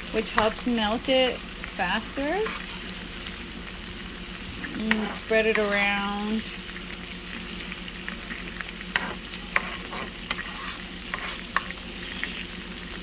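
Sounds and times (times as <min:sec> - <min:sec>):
meat sizzling in a frying pan: 0:00.0 - 0:13.0
metal spoon scraping a pan: 0:02.1 - 0:02.9, 0:04.7 - 0:05.8, 0:08.9 - 0:11.8.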